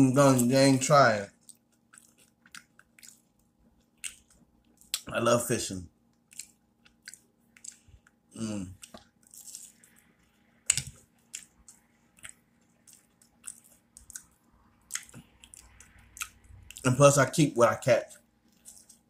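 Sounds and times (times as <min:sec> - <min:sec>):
close-up chewing: 0:01.3 - 0:05.1, 0:06.1 - 0:16.9, 0:18.0 - 0:19.0
short vocal sound: 0:08.4 - 0:08.8.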